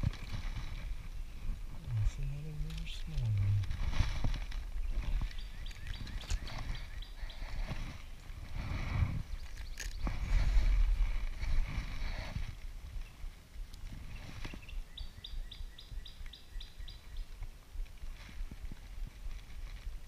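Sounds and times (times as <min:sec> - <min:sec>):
low rumble: 0:00.0 - 0:13.1.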